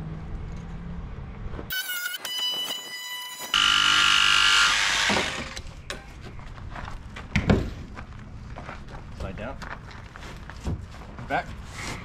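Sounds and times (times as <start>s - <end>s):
power saw cutting wood: 1.7s - 5.7s.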